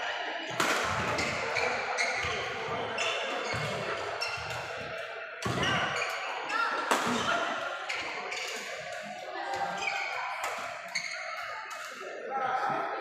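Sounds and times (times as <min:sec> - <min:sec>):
racket hitting shuttlecock: 0:00.5 - 0:01.4, 0:06.8 - 0:07.3.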